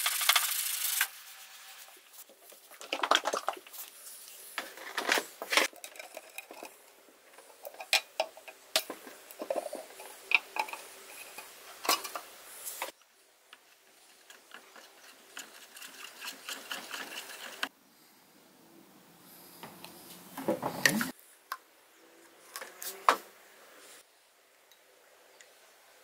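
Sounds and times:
stick stirring paint in tin: 13.6 - 17.7.

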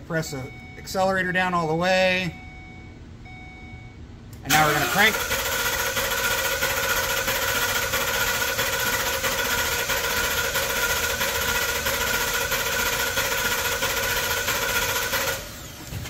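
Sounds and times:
engine cranking on starter: 4.5 - 16.0.

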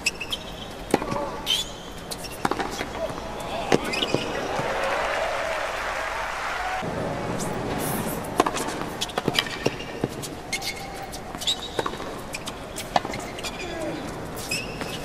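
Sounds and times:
shoe squeaks: 0.0 - 4.4, 7.4 - 15.0
tennis ball bouncing on hard court: 0.9 - 1.6, 2.2 - 4.4, 8.3 - 13.6.

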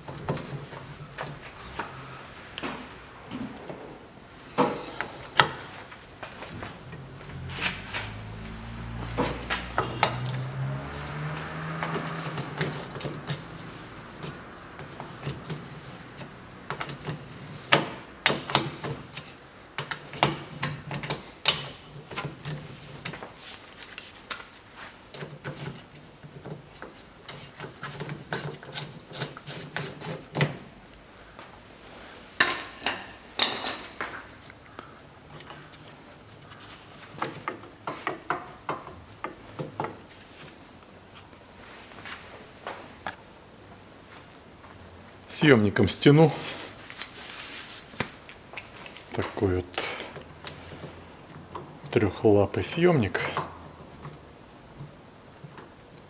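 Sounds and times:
metallic clinks and knocks: 8.1 - 23.4, 32.4 - 34.5.

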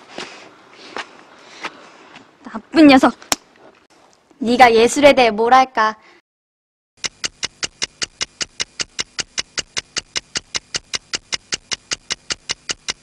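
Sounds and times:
rapid mechanical ticking: 7.0 - 13.0.

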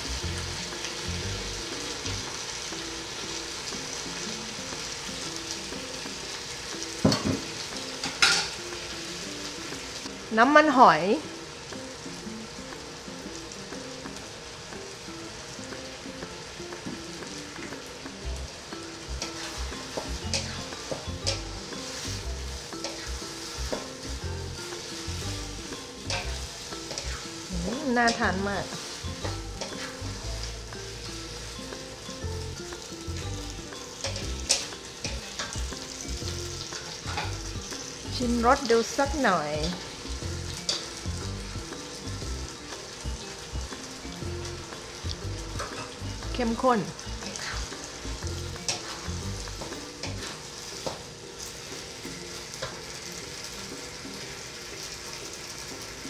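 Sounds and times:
food sizzling in a wok: 0.0 - 56.0
spatula knocking on pan: 7.0 - 8.6
wooden spatula scraping: 19.2 - 24.0, 47.2 - 47.7, 48.5 - 51.0.

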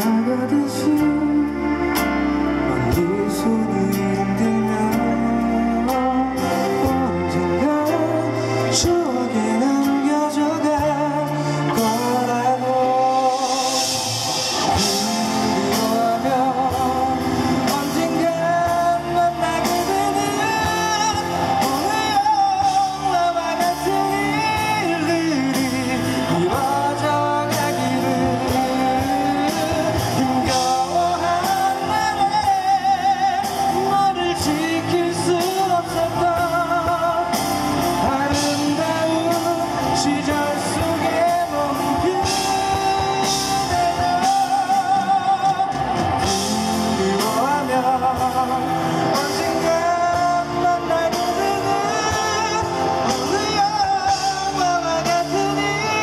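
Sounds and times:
electric bass: 0.0 - 56.0
live rock band playing: 0.0 - 56.0
man singing into a microphone: 0.0 - 56.0.

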